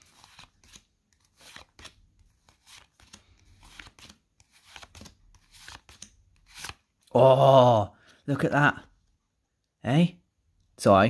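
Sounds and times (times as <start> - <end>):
cards clicking and rustling: 0.0 - 6.9.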